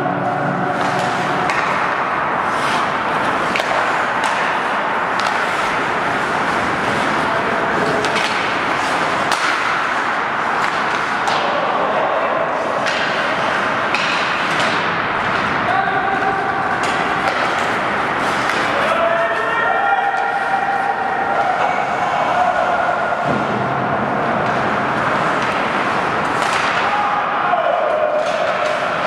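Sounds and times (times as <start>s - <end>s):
hockey sticks hitting puck: 0.0s - 29.0s
skate blades scraping ice: 0.8s - 11.6s, 16.2s - 19.0s.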